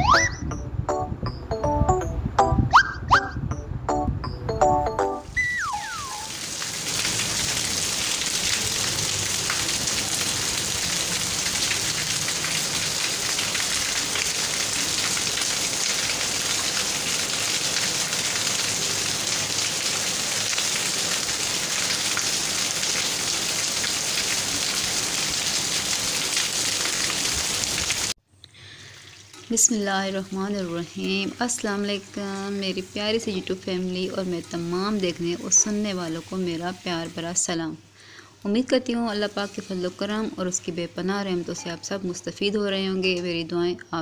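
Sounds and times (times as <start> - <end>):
heavy rain falling: 5.7 - 28.2.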